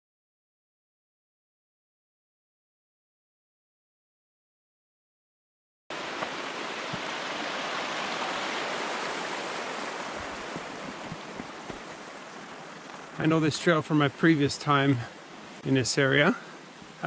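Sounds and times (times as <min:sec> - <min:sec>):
flowing stream: 0:05.9 - 0:17.0
faint low thuds: 0:10.0 - 0:12.1.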